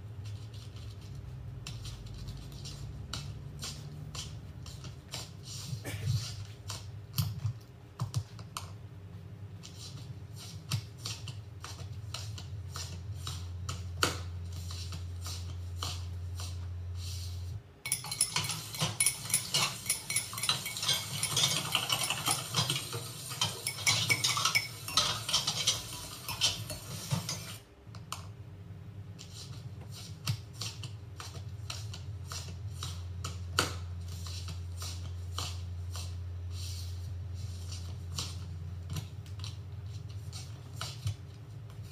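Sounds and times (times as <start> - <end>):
crockery and cutlery clinking: 17.9 - 27.6.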